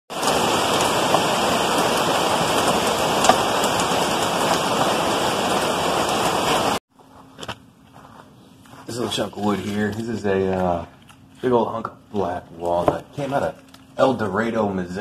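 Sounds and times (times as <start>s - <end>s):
heavy rain falling: 0.1s - 6.8s.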